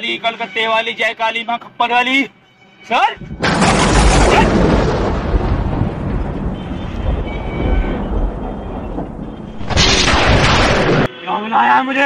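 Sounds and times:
thunder-like rumbling: 3.2s - 11.1s.

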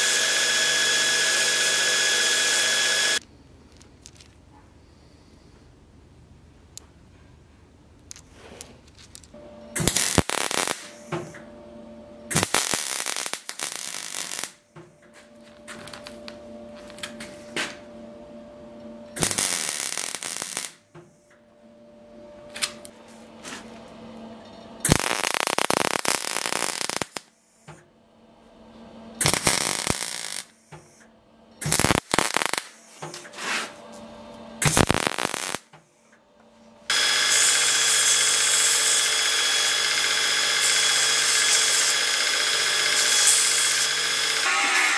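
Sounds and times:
belt grinder grinding steel: 0.0s - 3.2s, 36.9s - 44.9s
faint steady hum: 0.0s - 44.5s
gas torch flame hissing: 36.9s - 44.5s.

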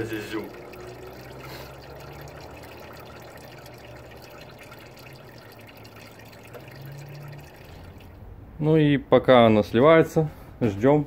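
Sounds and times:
oil trickling into canister: 0.0s - 8.4s.

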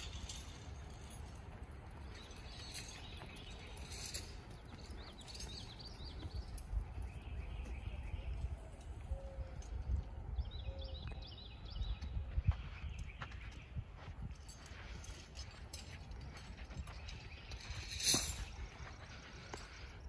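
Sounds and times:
horse hooves on sand: 0.0s - 20.0s
bird chirps: 2.0s - 13.7s.

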